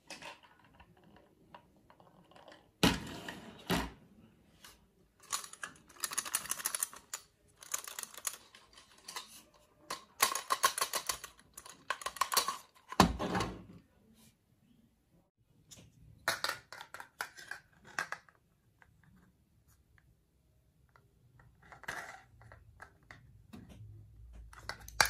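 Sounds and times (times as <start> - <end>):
plastic skewers clattering in paper cup: 5.2 - 13.1.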